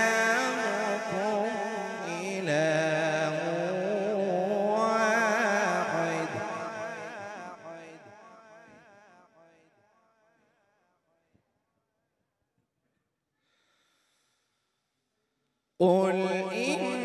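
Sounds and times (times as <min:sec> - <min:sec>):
man reciting through loudspeaker: 0:00.0 - 0:09.1, 0:15.8 - 0:17.0.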